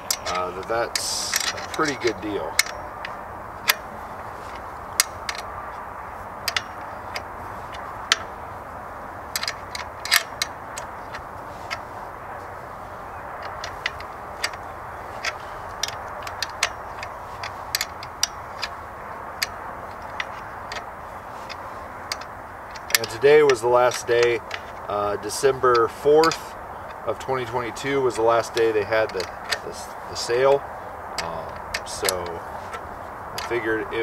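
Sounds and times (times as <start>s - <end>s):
tool tapping on metal: 0.0s - 3.9s, 13.3s - 30.6s, 31.2s - 34.0s
background hiss: 0.0s - 34.0s.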